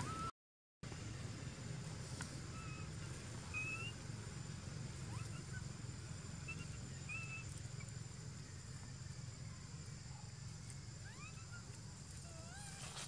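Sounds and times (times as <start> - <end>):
high-pitched animal squeaks: 0.0 - 0.3, 11.0 - 13.0
low outdoor rumble: 0.0 - 13.0.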